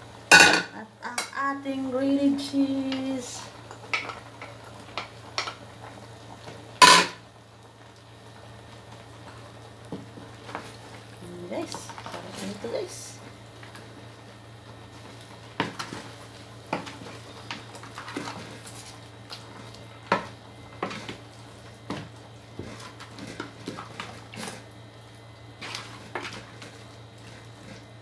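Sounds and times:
low steady hum: 0.0s - 28.0s
wooden spatula scraping a pot: 22.5s - 24.6s.

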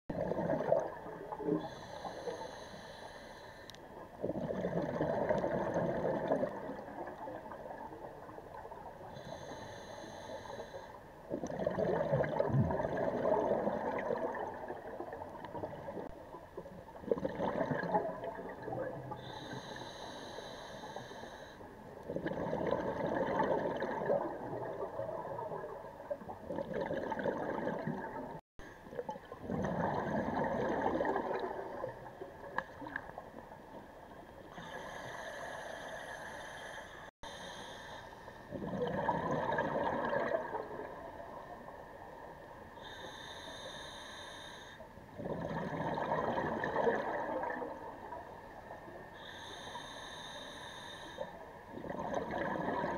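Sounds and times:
gurgling exhaled bubbles: 0.1s - 1.8s, 4.2s - 8.9s, 11.3s - 19.4s, 22.1s - 33.0s, 38.5s - 41.3s, 45.1s - 48.2s, 51.7s - 52.9s
regulator hissing inhale: 1.6s - 3.8s, 9.1s - 11.1s, 19.1s - 21.7s, 34.5s - 38.4s, 42.8s - 44.9s, 49.2s - 51.4s.

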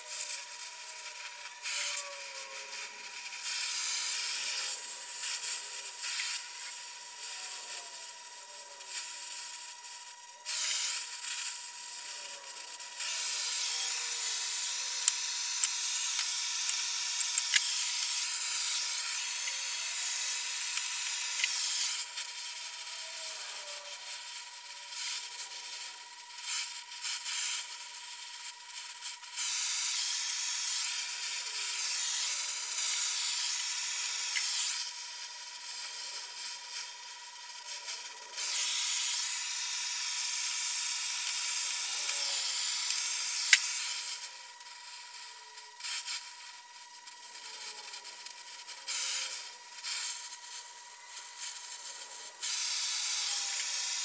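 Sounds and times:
torch flame hissing: 0.0s - 54.0s.

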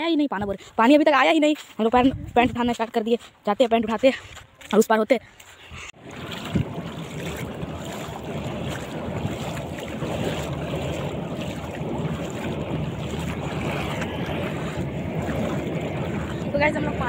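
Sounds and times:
wind rumbling on microphone: 1.9s - 2.9s, 5.7s - 17.0s
shallow river washing: 5.9s - 17.0s.

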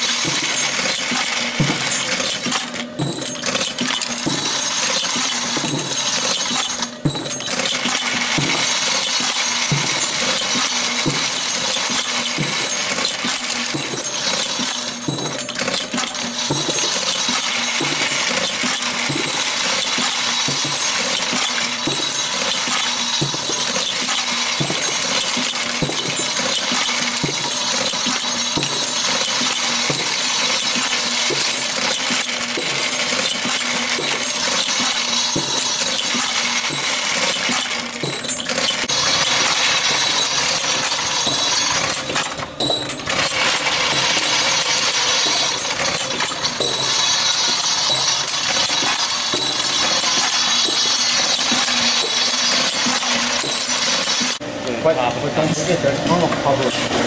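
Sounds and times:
machine plungers clacking: 0.0s - 54.7s, 55.3s - 57.0s.

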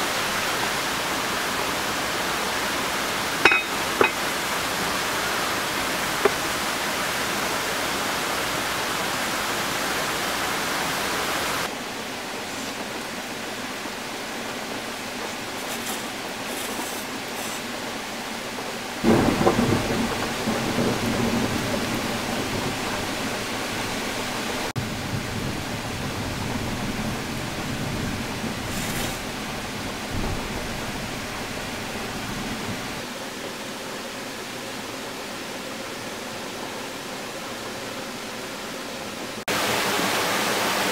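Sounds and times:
heavy rain: 0.0s - 40.9s
thunder clap rumbling: 19.0s - 33.0s.

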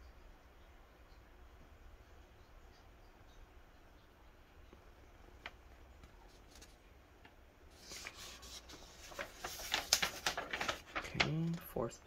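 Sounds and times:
paper crinkling and rustling: 5.4s - 11.8s.

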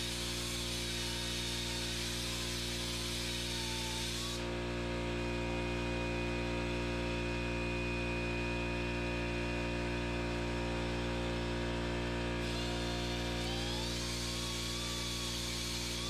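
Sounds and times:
die grinder air hiss: 0.0s - 4.4s
air compressor humming: 0.0s - 5.0s, 12.3s - 16.0s.

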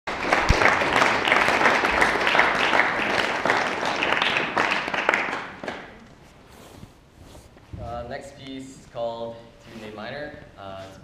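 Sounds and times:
small audience applauding: 0.1s - 6.1s.

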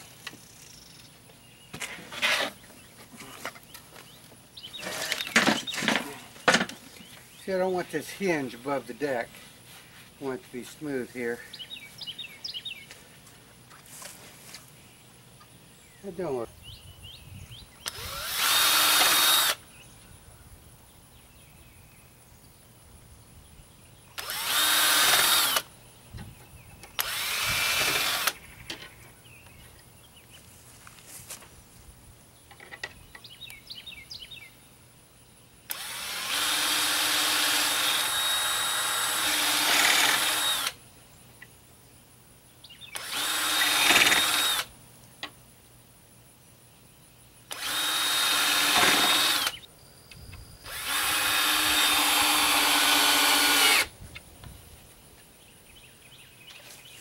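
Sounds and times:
cordless drill bursts on metal: 17.8s - 19.6s, 24.2s - 25.7s, 27.0s - 28.4s, 35.7s - 40.8s, 43.0s - 44.7s, 47.5s - 49.6s, 50.7s - 53.9s.

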